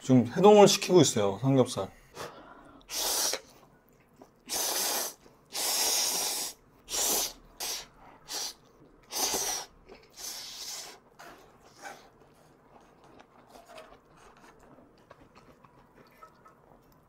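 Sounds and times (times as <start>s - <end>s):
person slurping noodles: 2.9s - 3.6s, 4.4s - 12.2s.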